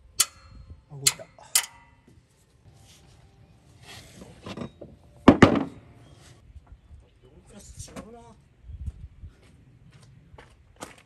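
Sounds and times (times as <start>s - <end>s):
hammer striking metal: 0.0s - 2.1s.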